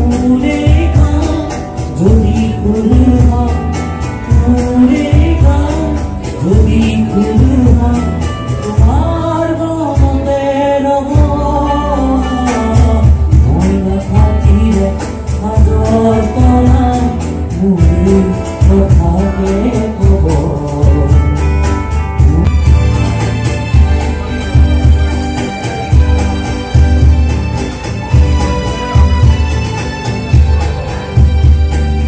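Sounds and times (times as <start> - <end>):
person singing: 0.0 - 22.8
acoustic guitar: 0.0 - 32.0.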